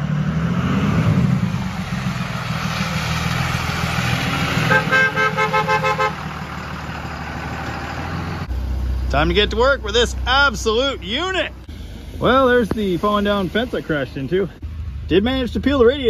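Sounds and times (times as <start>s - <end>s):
truck engine rumbling: 0.0s - 16.0s
car horn short toots: 4.7s - 6.2s.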